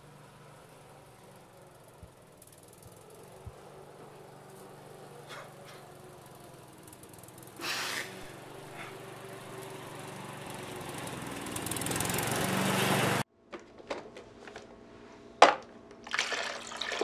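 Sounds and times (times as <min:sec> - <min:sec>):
man gasping: 0:07.6 - 0:09.0.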